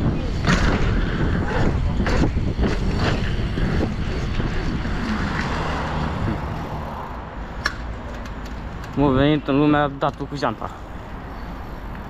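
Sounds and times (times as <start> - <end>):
wind rushing over microphone: 0.0 - 8.0.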